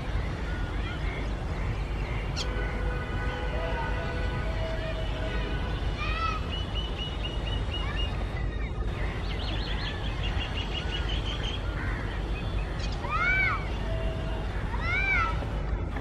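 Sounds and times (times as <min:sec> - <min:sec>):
small birds chirping: 0:00.0 - 0:02.6, 0:06.0 - 0:15.3.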